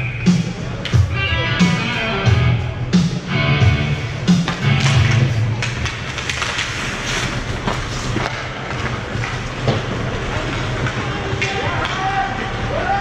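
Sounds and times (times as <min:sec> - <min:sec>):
rink music: 0:00.0 - 0:13.0
skate blades scraping ice: 0:05.5 - 0:11.6.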